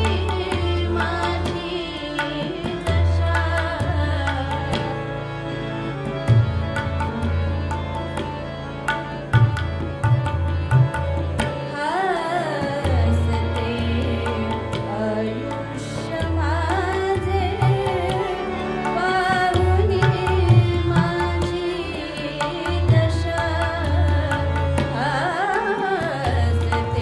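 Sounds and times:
woman singing: 0:00.0 - 0:05.2, 0:11.6 - 0:27.0
harmonium: 0:00.0 - 0:27.0.

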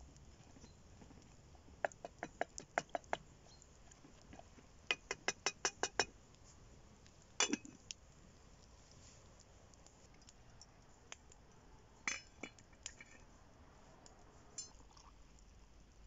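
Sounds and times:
spoon clinking in a pot: 0:07.4 - 0:07.8, 0:12.1 - 0:12.6, 0:14.6 - 0:14.9.

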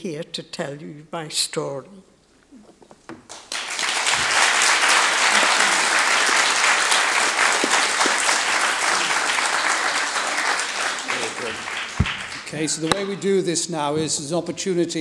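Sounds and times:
children applauding: 0:03.3 - 0:13.0.

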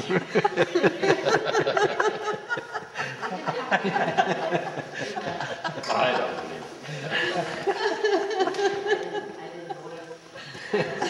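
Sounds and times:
people laughing: 0:00.0 - 0:11.0.

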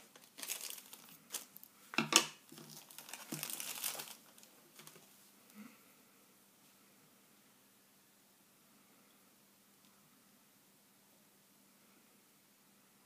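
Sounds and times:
plastic packaging crinkling: 0:00.0 - 0:05.1.

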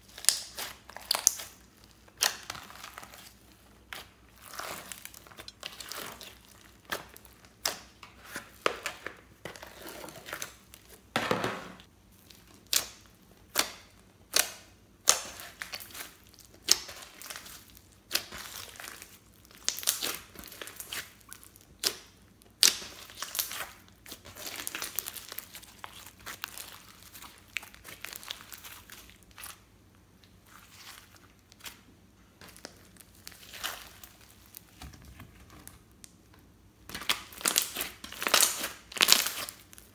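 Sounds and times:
slime popping and crackling: 0:12.3 - 0:29.5, 0:36.8 - 0:39.9.

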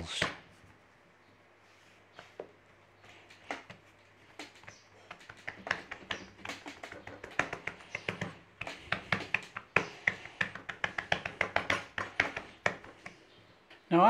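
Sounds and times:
hands patting dough on metal tray: 0:03.2 - 0:13.3.

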